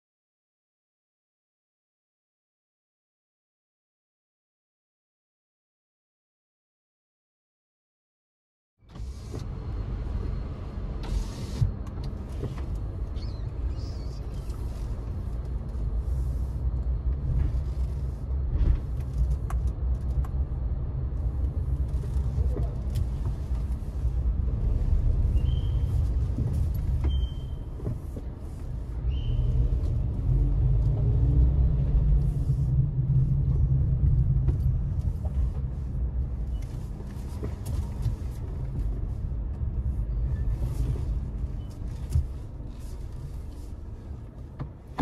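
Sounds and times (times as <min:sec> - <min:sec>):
car engine and tyres rumbling: 0:08.8 - 0:45.0
short high squeaks: 0:27.0 - 0:27.7.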